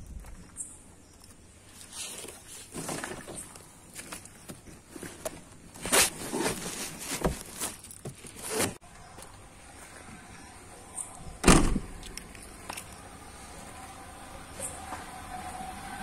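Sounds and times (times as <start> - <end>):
rustling and knocking of handling: 2.2 - 8.8
car door being shut: 11.4 - 12.0.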